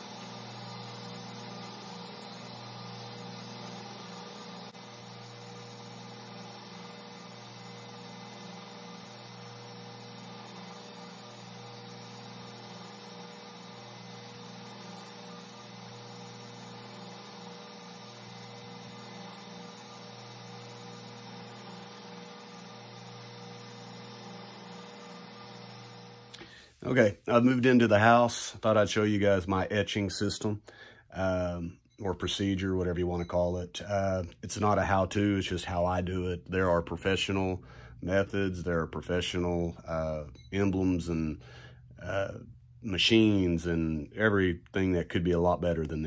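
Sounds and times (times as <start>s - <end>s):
electric motor hum: 0.0s - 26.6s.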